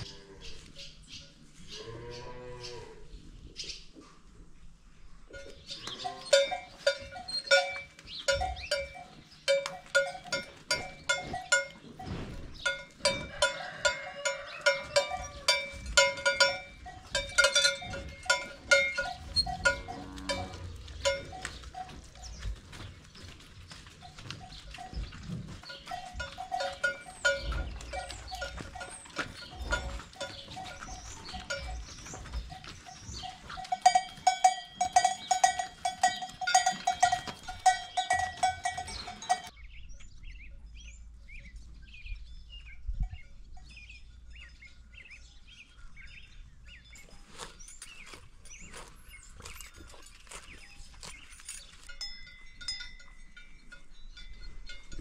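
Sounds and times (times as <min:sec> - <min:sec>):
cowbells clanking: 0:05.3 - 0:39.6, 0:46.9 - 0:55.0.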